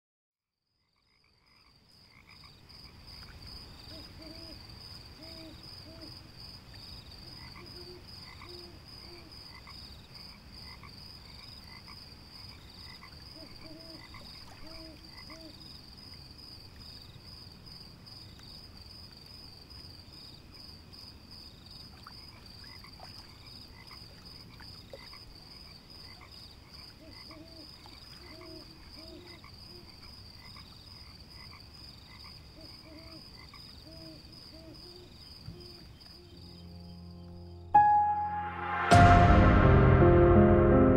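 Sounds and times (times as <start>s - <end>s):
frogs croaking: 0.8s - 16.3s, 22.0s - 37.3s.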